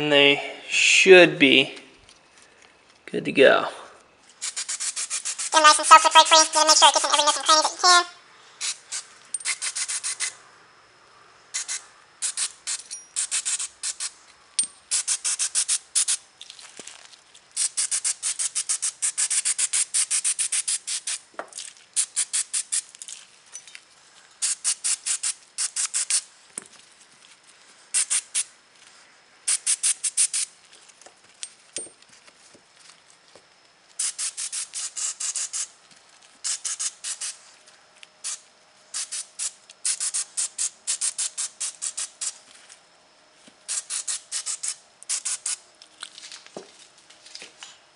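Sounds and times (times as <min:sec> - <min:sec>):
gloved hands rubbing metal: 0:04.4 - 0:08.0, 0:08.6 - 0:10.3.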